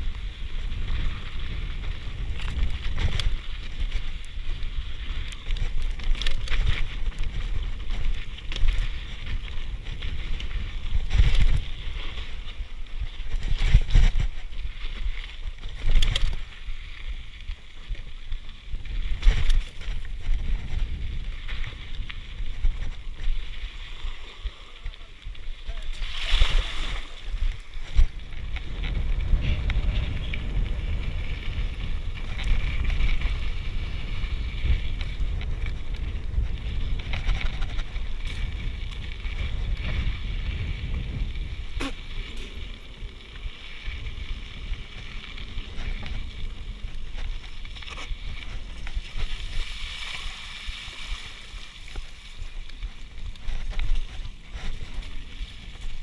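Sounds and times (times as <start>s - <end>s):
bike tyres on rocky dirt: 0.0s - 56.0s
wind buffeting microphone: 0.0s - 56.0s.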